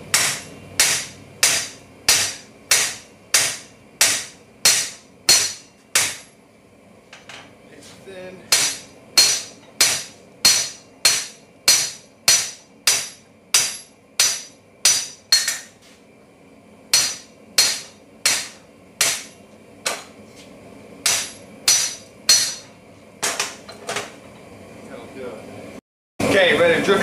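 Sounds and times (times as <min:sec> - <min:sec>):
hammer striking steel on anvil: 0:00.1 - 0:06.3, 0:08.5 - 0:15.8, 0:16.9 - 0:20.1, 0:21.0 - 0:23.6.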